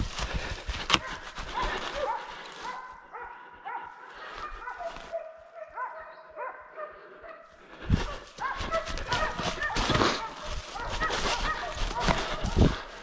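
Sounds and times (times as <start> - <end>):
hunting dogs baying: 0.3 - 13.0.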